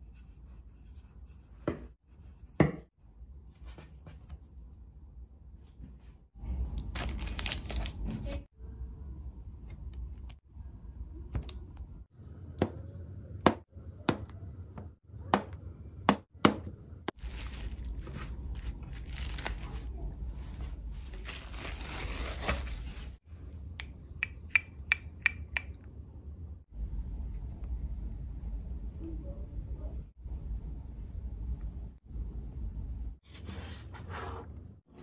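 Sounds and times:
plastic cling wrap crinkling: 6.8 - 8.5, 17.2 - 23.2.

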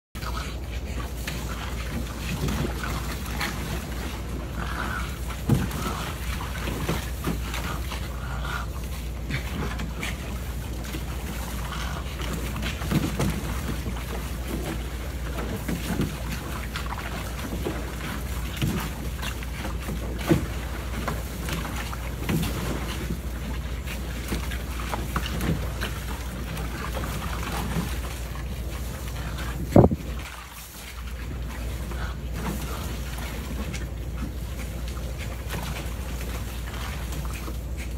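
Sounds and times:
water splashing in a pool: 0.0 - 37.9
wind rumble on microphone: 28.9 - 30.3.

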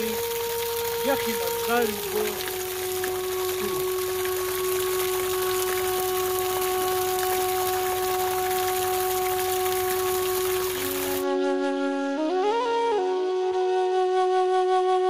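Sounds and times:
water pouring from a spout: 0.0 - 11.2
long flute note: 0.0 - 15.0.

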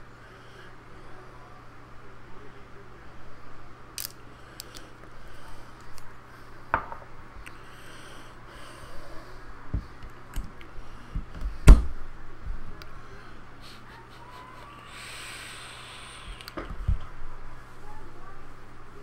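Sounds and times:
dull thump: 11.2 - 12.0.

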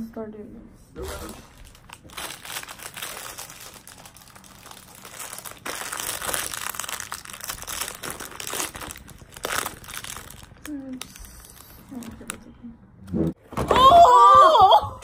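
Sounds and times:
plastic bag crinkling: 1.0 - 12.4.

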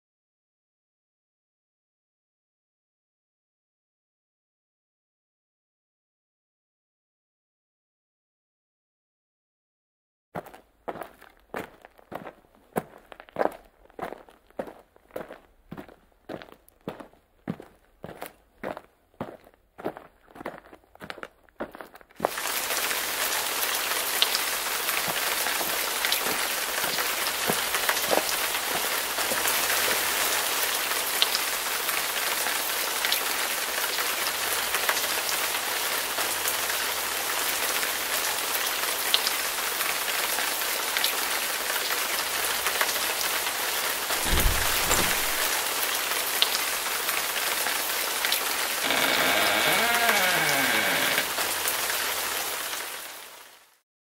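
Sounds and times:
steady rain falling: 10.4 - 53.8
door creaking open: 44.2 - 45.5, 48.8 - 51.5
low thud: 44.2 - 45.5.

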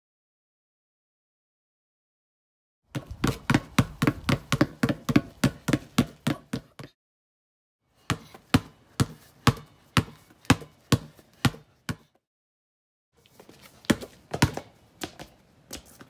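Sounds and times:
basketballs bouncing on concrete: 2.9 - 7.0, 8.0 - 12.2, 13.4 - 16.0.

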